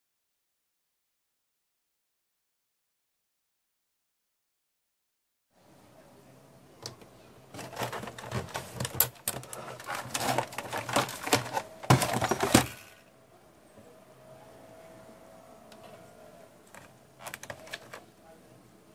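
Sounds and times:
plastic robot vacuum rattling: 7.6s - 13.0s, 17.2s - 18.0s.

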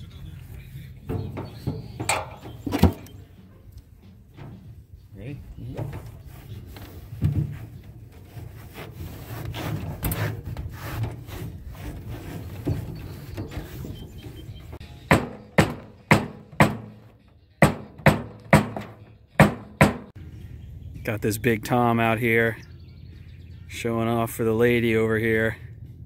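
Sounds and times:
wire mesh rubbing on board: 6.0s - 14.8s
hammer blows on wire mesh: 15.1s - 20.2s.

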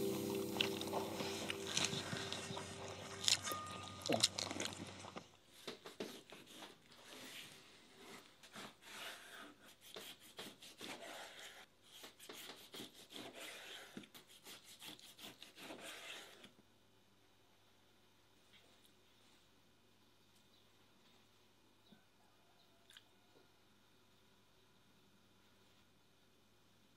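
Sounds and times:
knife scraping wooden board: 8.1s - 16.5s.

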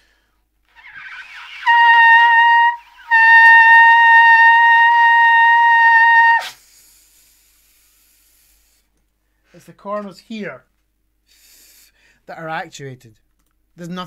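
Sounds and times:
trumpet playing high note: 0.7s - 6.6s.

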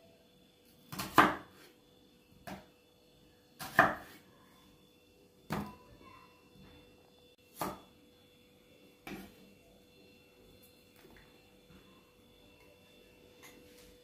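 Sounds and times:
knife chopping on cutting board: 0.9s - 1.7s, 3.6s - 4.2s, 7.6s - 7.8s.

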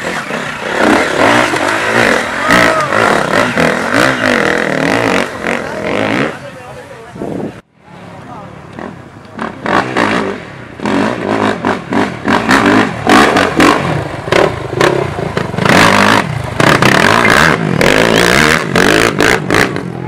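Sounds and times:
quad engine revving: 0.0s - 6.6s, 8.7s - 20.0s.

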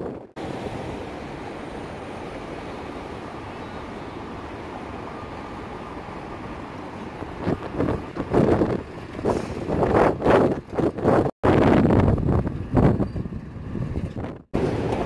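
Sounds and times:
tram rolling past: 0.0s - 11.3s, 11.9s - 15.0s
wind hitting microphone: 6.8s - 15.0s.

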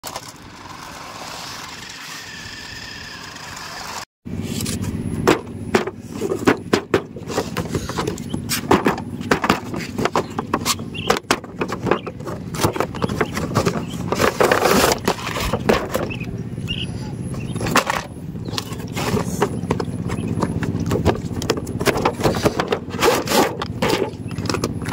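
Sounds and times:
toy car electric motors whining: 0.0s - 4.1s.

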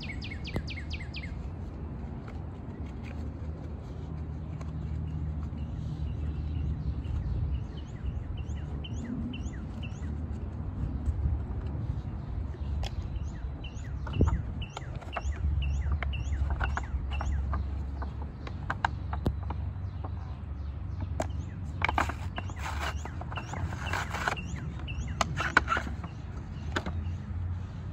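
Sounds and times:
bird chirping: 0.0s - 1.5s, 4.6s - 10.2s, 12.1s - 27.3s.

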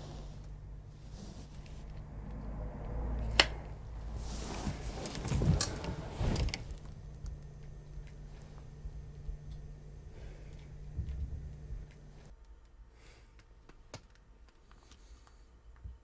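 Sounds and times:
bedding rustling: 3.9s - 7.0s.

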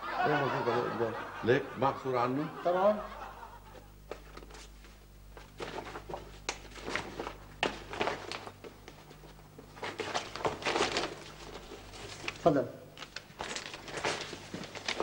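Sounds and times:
faint steady hum: 0.0s - 15.0s
wallet and papers rustling: 4.1s - 15.0s.

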